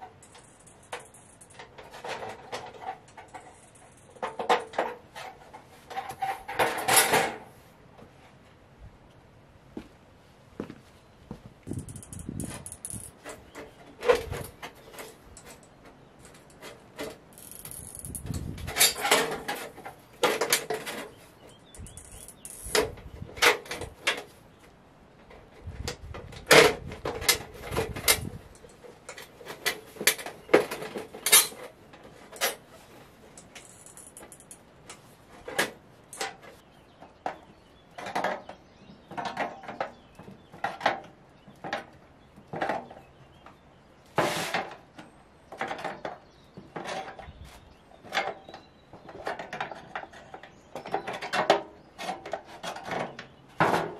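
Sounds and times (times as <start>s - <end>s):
metallic clinks on pipe: 0.2s - 1.7s, 11.8s - 13.2s, 21.6s - 22.8s, 33.4s - 34.6s.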